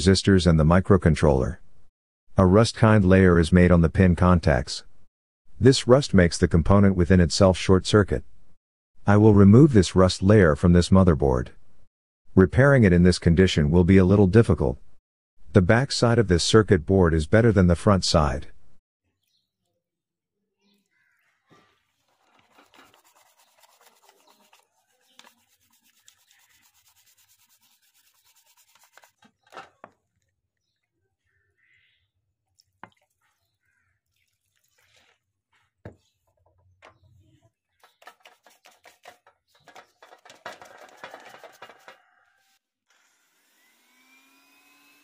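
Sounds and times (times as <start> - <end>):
scrubbing on a circuit board: 21.9 - 29.4, 37.8 - 42.2.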